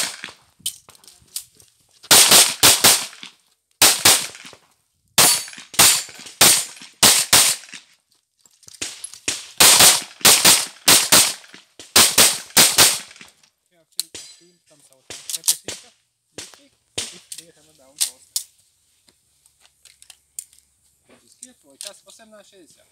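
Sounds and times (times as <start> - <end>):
pistol shots in pairs: 0.0 - 0.4, 2.1 - 3.2, 3.8 - 4.6, 5.2 - 7.8, 9.3 - 13.2.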